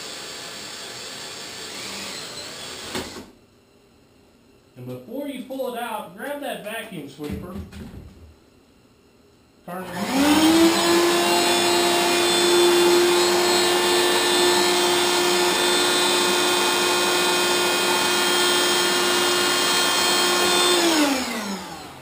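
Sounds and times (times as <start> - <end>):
handheld vacuum running: 0.0 - 3.3, 9.7 - 22.0
vacuum motor winding down: 0.0 - 3.3, 9.7 - 22.0.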